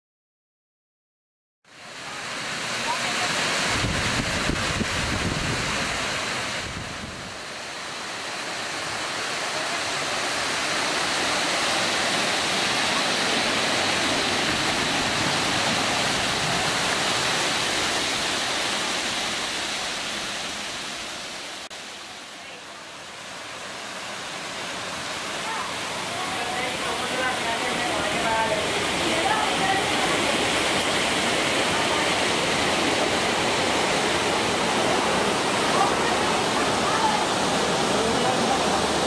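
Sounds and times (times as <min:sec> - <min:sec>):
fountain water splashing: 0:01.7 - 0:39.0.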